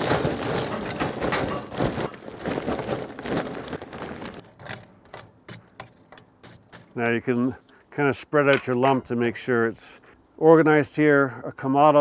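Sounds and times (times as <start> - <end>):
charcoal clattering into grill: 0.0 - 7.2, 8.5 - 9.2.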